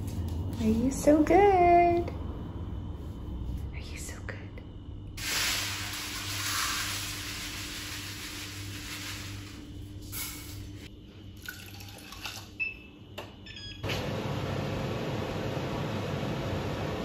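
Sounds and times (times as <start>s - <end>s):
low steady hum: 0.0s - 17.0s
contents poured into saucepan: 5.2s - 10.6s, 11.4s - 12.5s.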